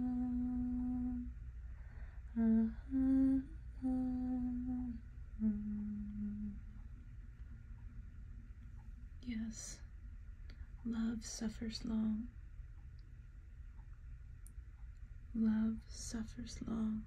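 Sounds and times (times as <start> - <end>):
woman humming a slow tune: 0.0 - 1.4, 2.3 - 6.8.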